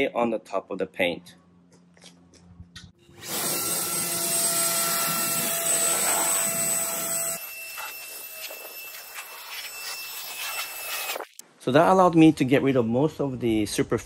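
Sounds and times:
electric leaf blower running: 3.2s - 8.7s.

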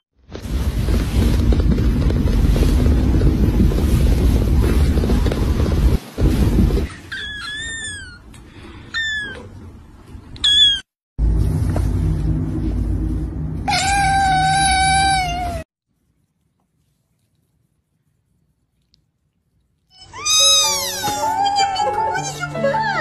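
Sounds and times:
cat meowing: 7.1s - 8.3s, 8.9s - 9.6s, 10.4s - 10.9s, 13.7s - 15.6s, 19.9s - 21.4s
kitten mewing: 19.9s - 21.3s.

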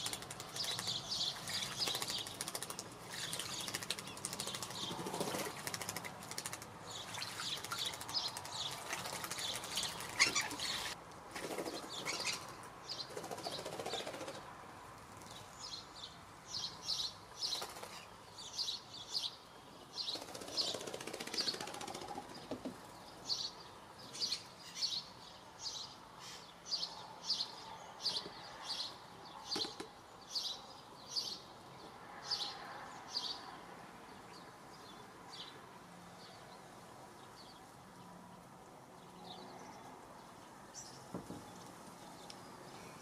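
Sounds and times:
bird splashing wings in water: 0.0s - 10.9s.

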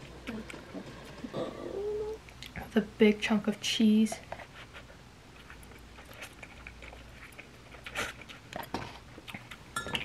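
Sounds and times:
person chewing noodles: 5.3s - 10.0s.

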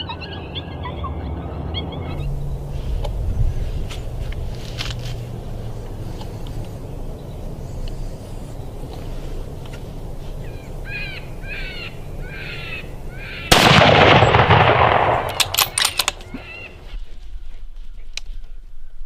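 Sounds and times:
rifle shot with rolling echo: 13.5s - 16.7s.

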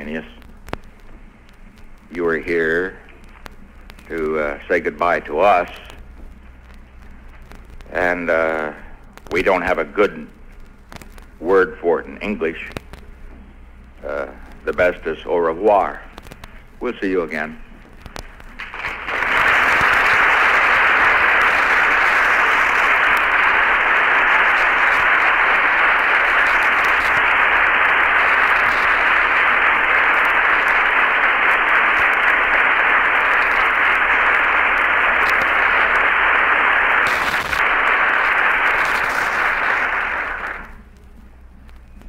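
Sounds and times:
audience applause: 18.2s - 40.8s.

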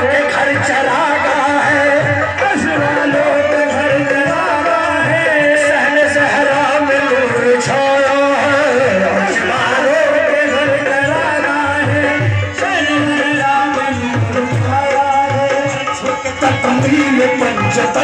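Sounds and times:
hand drum beats: 0.0s - 18.0s
harmonium melody: 0.0s - 18.0s.

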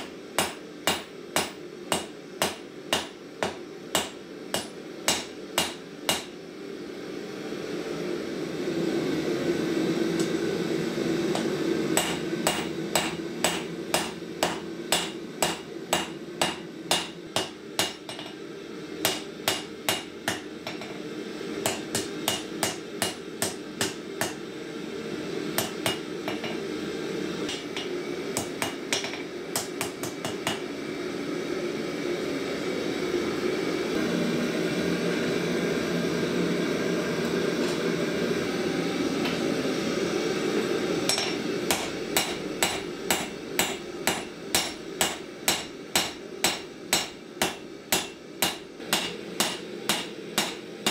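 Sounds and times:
hammer striking steel on anvil: 0.0s - 6.4s, 11.3s - 18.4s, 19.0s - 21.0s, 21.6s - 24.4s, 25.6s - 26.6s, 27.5s - 30.7s, 41.1s - 50.9s
gas forge burner: 0.0s - 50.9s.

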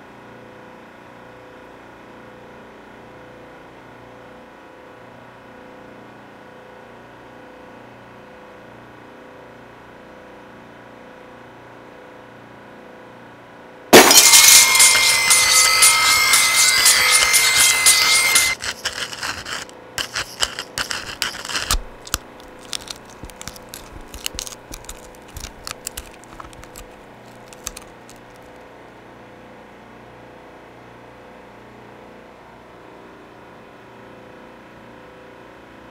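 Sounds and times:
scrapes and sharp clicks: 14.0s - 28.5s.

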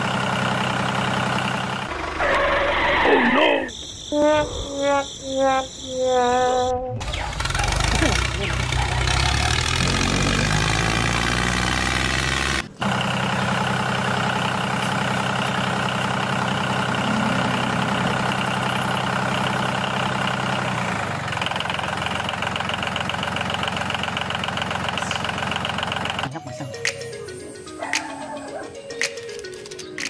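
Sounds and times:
tractor engine idling: 0.0s - 2.9s, 7.0s - 11.6s, 12.4s - 28.0s.

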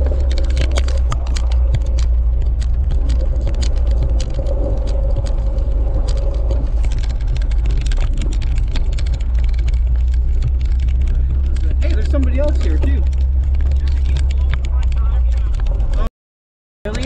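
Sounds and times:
car engine and road drone: 0.0s - 16.1s
clicks and rattles from bumps: 0.0s - 16.1s.

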